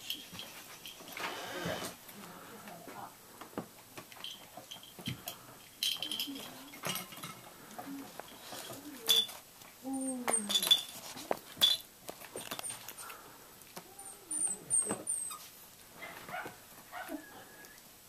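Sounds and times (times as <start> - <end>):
puppies chewing plush toys: 0.0 - 17.8
tiny high squeaks: 12.3 - 13.1, 13.9 - 15.6
puppies whining: 13.8 - 17.9.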